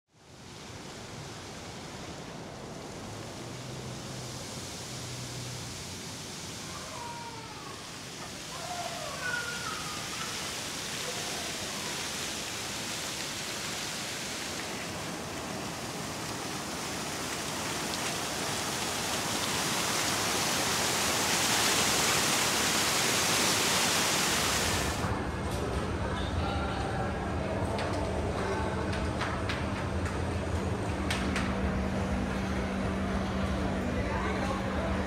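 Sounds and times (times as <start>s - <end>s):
fountain water splashing: 0.2s - 25.1s.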